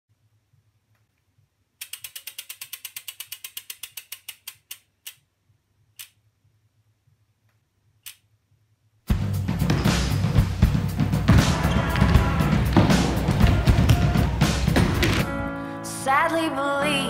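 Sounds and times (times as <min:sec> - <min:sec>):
bicycle hub ratchet clicking: 0:01.8 - 0:05.2.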